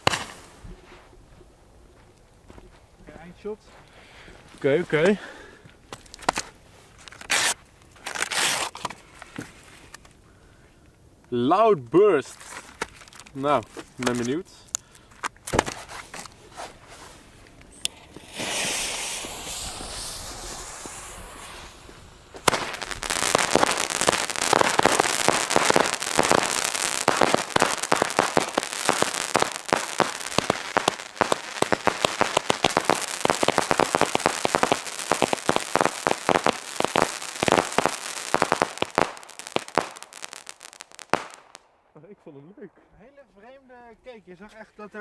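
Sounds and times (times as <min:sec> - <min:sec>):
firework shots and crackling: 0:00.0 - 0:00.6, 0:07.2 - 0:08.8, 0:17.9 - 0:41.7
firework hissing: 0:17.8 - 0:41.6.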